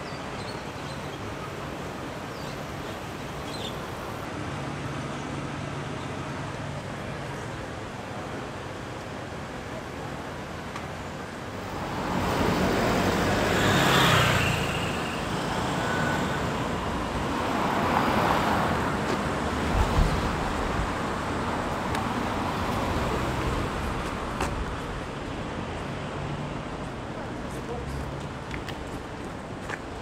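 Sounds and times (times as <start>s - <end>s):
cars driving past: 11.6s - 28.5s.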